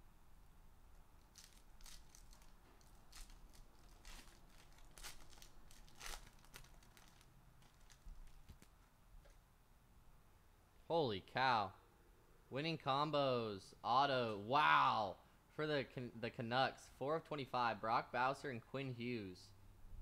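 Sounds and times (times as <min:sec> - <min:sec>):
foil wrapper tearing and crinkling: 0:01.2 - 0:08.8.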